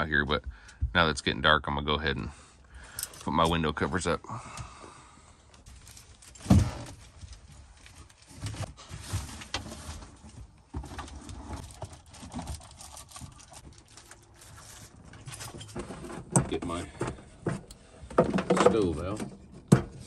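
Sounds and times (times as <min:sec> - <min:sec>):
rustling: 0:05.6 - 0:18.2.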